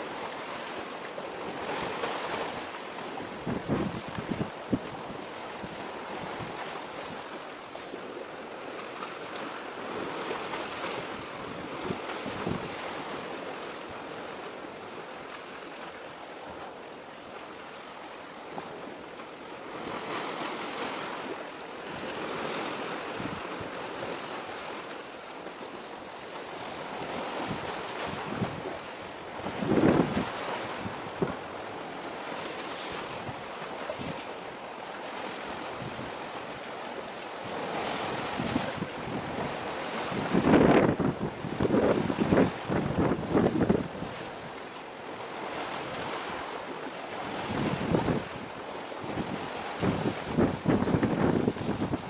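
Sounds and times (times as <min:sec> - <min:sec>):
sea waves washing in: 0:00.0 - 0:52.0
wind rushing over microphone: 0:03.2 - 0:07.2, 0:10.4 - 0:13.1, 0:21.9 - 0:24.2, 0:26.8 - 0:31.6, 0:37.4 - 0:44.6, 0:47.1 - 0:52.0.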